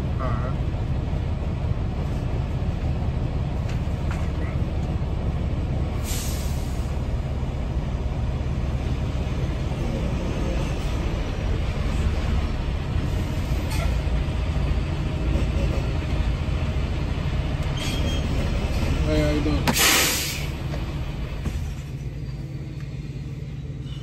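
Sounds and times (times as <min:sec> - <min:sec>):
truck diesel engine rumbling: 0:00.0 - 0:24.0
short air hiss: 0:06.0 - 0:06.9, 0:19.8 - 0:20.5.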